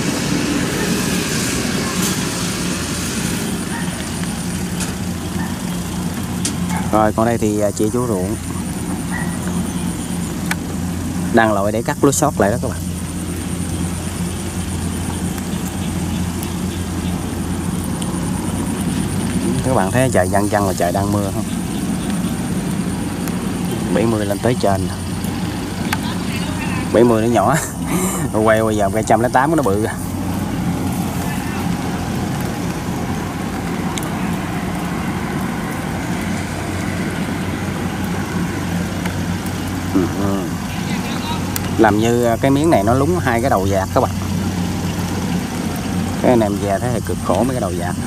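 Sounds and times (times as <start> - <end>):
combine harvester diesel engine: 0.0 - 48.0.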